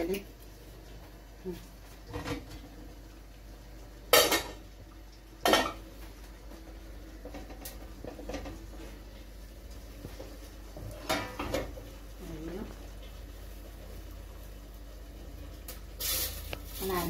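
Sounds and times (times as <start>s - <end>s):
kitchenware clattering: 4.1s - 4.6s, 5.4s - 5.8s, 7.2s - 8.6s, 10.8s - 11.8s
kitchenware handling noises: 10.9s - 11.8s.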